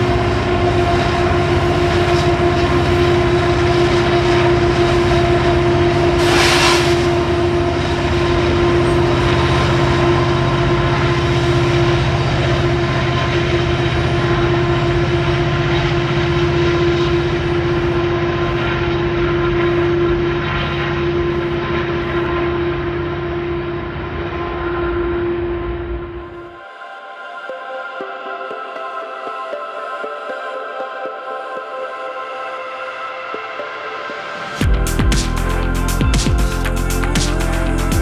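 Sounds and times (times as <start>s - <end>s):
locomotive engine rumble: 0.0s - 18.4s
steady whine: 0.0s - 38.0s
burst of hiss: 6.2s - 7.2s.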